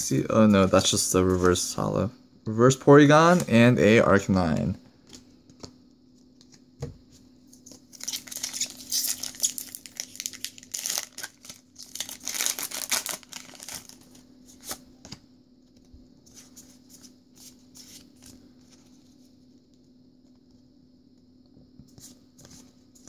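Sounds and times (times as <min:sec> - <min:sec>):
cards rustling: 0:07.6 - 0:19.0
foil wrapper tearing and crinkling: 0:07.9 - 0:14.1.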